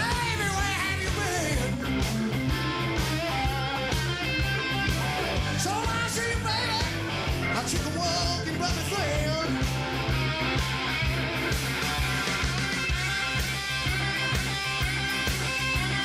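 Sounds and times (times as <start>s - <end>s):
person singing: 0.0s - 2.0s, 5.4s - 9.6s
rock and roll song: 0.0s - 16.0s.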